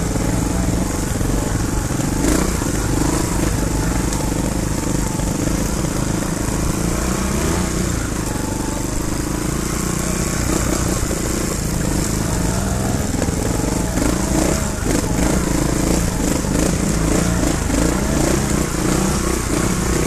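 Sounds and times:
motorcycle engines running: 0.0 - 20.0.

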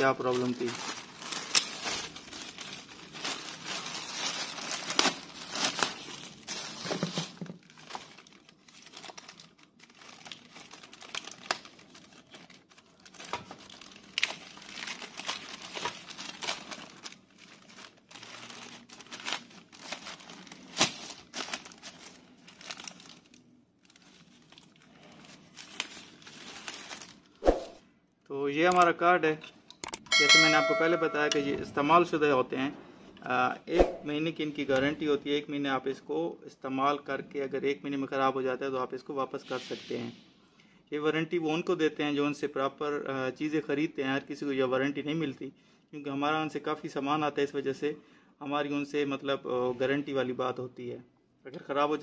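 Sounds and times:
plastic packaging crinkling: 0.0 - 27.4.

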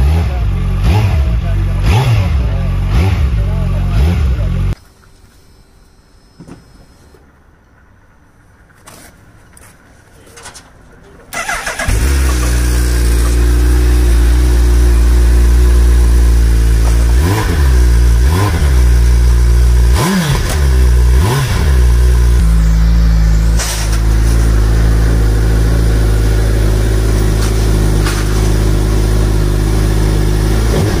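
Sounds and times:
motorcycle engine idling: 7.2 - 20.0
engine throttle blips: 10.8 - 31.0.

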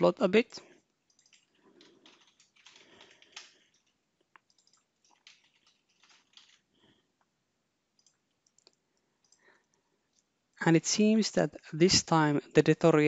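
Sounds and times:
keyboard typing: 1.0 - 6.7, 8.0 - 9.4.

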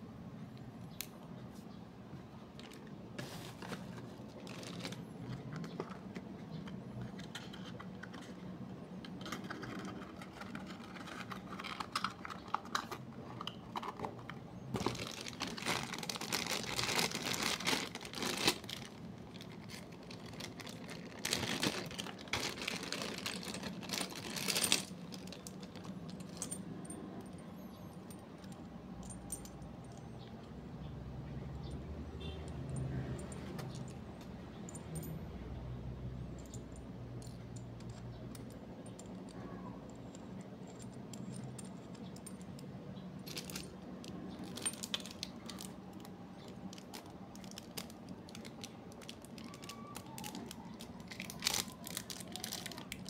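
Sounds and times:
light clicks of small parts: 0.5 - 1.8, 36.2 - 53.0
plastic bag crinkling: 2.6 - 5.9, 14.7 - 26.6, 43.2 - 53.0.

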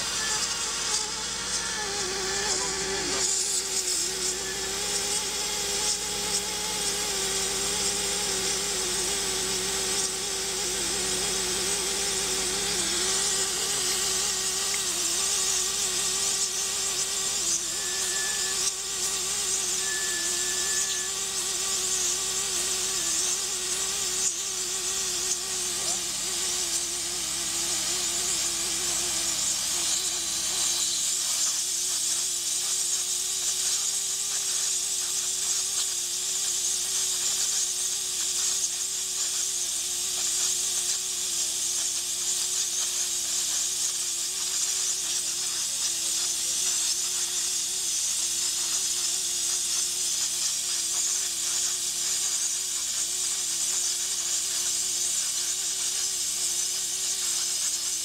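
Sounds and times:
machine hum: 0.0 - 31.2
air hissing: 0.0 - 58.0.

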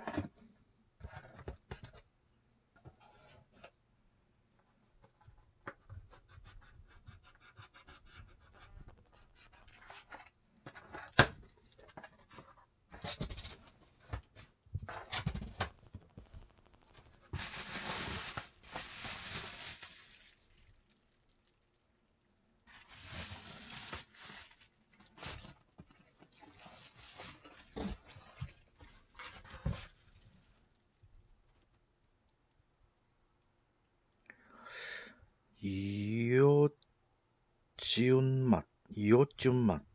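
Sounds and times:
bubble wrap rustling: 15.0 - 21.9, 22.6 - 30.8.

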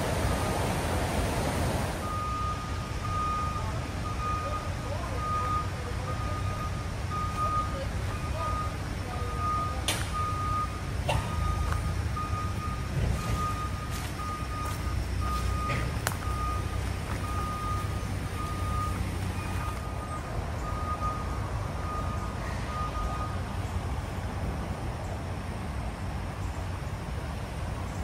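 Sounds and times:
reversing alarm beeping: 2.0 - 23.4.

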